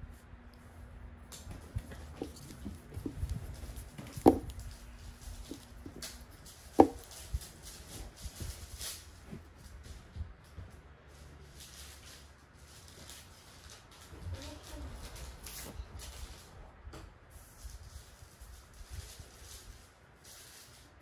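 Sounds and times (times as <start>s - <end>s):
sharp knocks: 4.1s - 4.6s, 6.8s - 7.1s.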